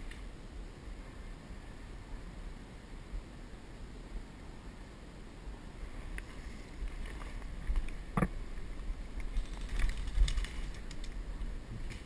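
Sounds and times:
wind on microphone: 4.2 - 12.0
microphone handling rumble: 6.3 - 12.0.

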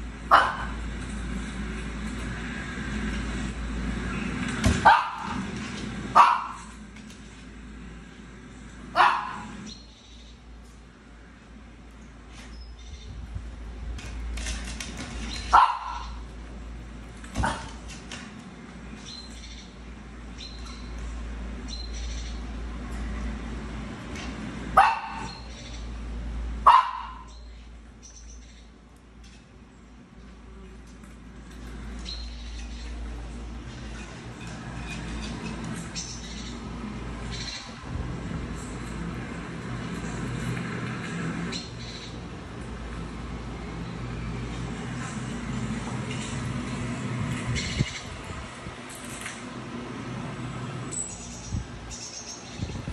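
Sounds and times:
small dog barking: 0.3 - 0.8, 4.8 - 5.4, 6.2 - 6.7, 8.9 - 9.6, 15.5 - 16.2, 24.8 - 25.4, 26.6 - 27.3.

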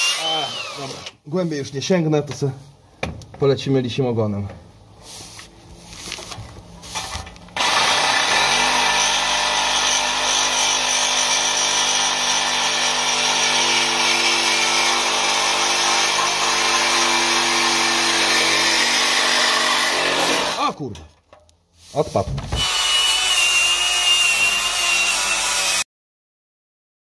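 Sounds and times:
reciprocating saw cutting steel pipe: 7.6 - 20.7, 22.6 - 25.8.

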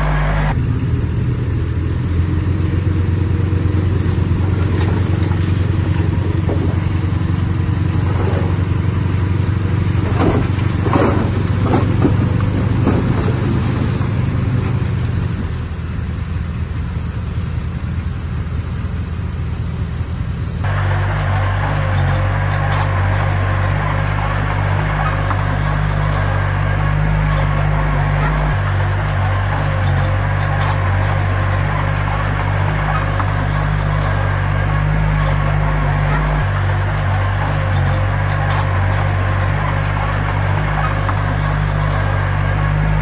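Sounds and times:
diesel engine running: 0.0 - 43.0.

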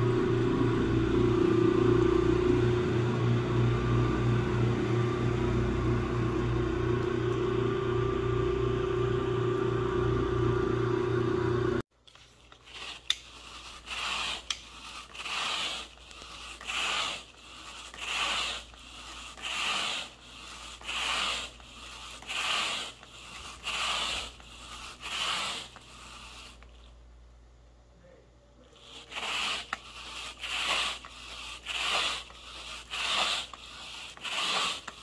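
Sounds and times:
machine motor humming: 0.0 - 11.8
rake swishing through carpet: 12.1 - 26.9, 28.8 - 35.0.

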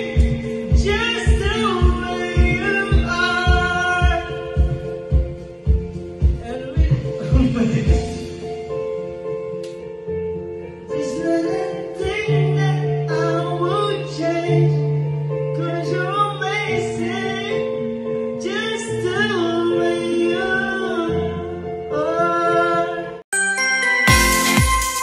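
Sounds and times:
man singing into a microphone: 0.0 - 5.1, 6.4 - 8.5
backing track music: 0.0 - 25.0.

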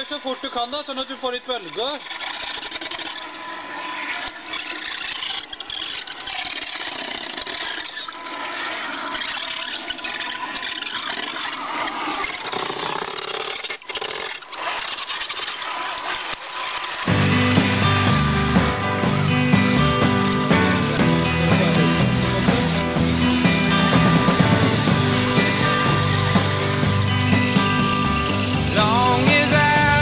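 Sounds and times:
toy car motor and gearbox running: 0.0 - 17.1.

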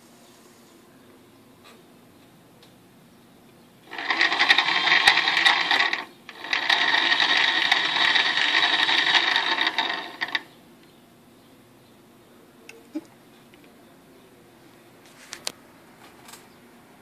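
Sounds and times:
small electric motor buzzing: 3.8 - 10.5.

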